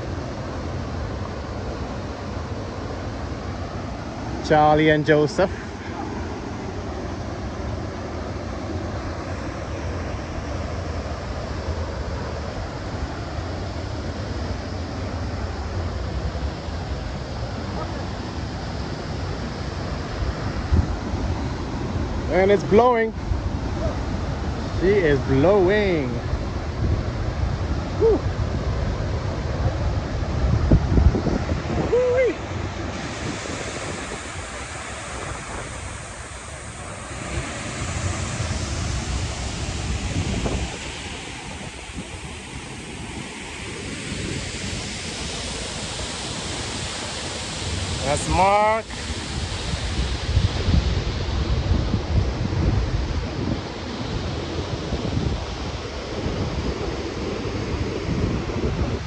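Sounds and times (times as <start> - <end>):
waterfall rushing into pool: 0.0 - 59.0
wind buffeting microphone: 14.4 - 59.0.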